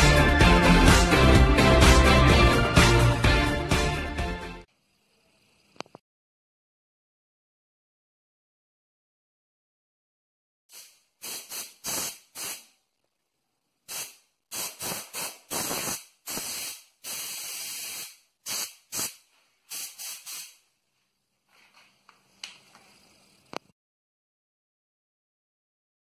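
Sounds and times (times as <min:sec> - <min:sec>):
compressed air blasts: 0:10.7 - 0:12.7, 0:13.9 - 0:20.6
faint air hiss: 0:10.7 - 0:12.8, 0:13.4 - 0:23.7.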